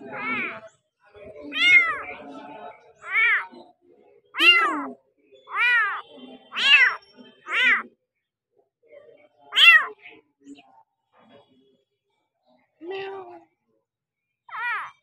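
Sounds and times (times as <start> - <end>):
kitten meowing: 0.0 - 0.6, 1.5 - 2.1, 3.0 - 3.5, 4.4 - 6.0, 6.6 - 7.8, 9.6 - 9.9, 14.5 - 14.9.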